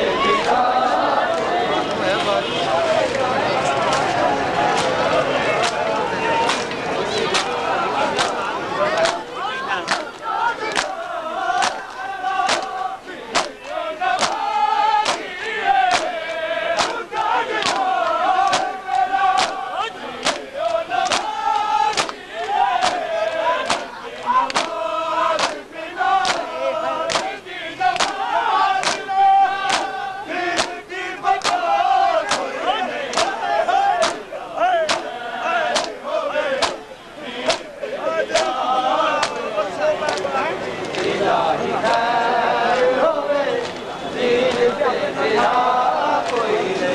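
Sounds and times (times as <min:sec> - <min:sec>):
crowd of men chanting: 0:00.0 - 0:46.9
palms slapping bare chests: 0:08.2 - 0:08.4, 0:09.8 - 0:25.6, 0:26.2 - 0:33.4, 0:34.0 - 0:36.0, 0:36.6 - 0:36.8, 0:37.4 - 0:37.7, 0:38.3 - 0:38.6, 0:39.2 - 0:39.5.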